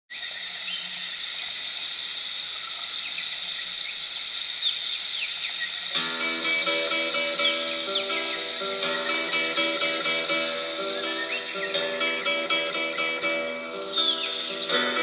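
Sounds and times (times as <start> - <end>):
insect chirps: 0.1 - 15.0
insects droning: 0.1 - 15.0
plucked guitar music: 6.0 - 15.0.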